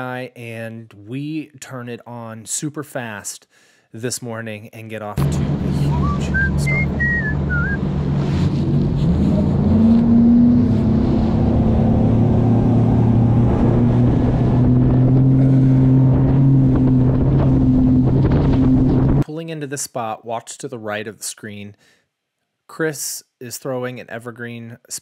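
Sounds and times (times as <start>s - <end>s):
wind buffeting microphone: 13.1s - 19.2s.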